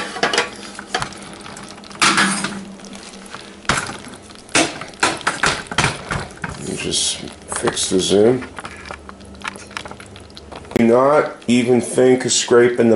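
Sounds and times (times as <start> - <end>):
syrup sizzling and bubbling: 0.0 - 12.9.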